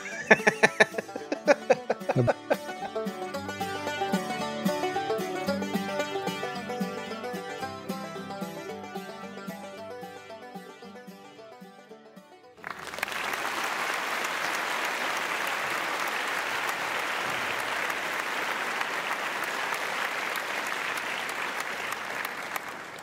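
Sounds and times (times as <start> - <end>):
applause: 12.6 - 23.0.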